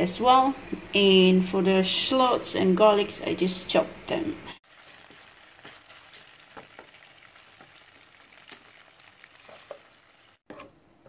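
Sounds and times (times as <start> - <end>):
meat sizzling in hot oil: 4.6 - 10.4
oil popping: 4.6 - 10.5
wooden spatula stirring: 4.6 - 10.7.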